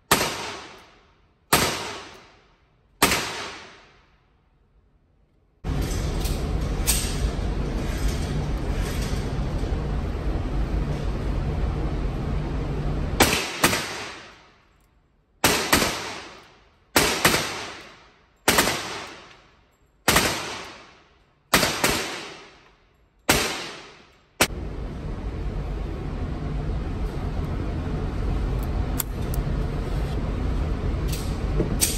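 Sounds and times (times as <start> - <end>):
revolver gunshots echoing indoors: 0.0 - 4.9, 13.2 - 24.7
steady background noise: 0.0 - 31.9.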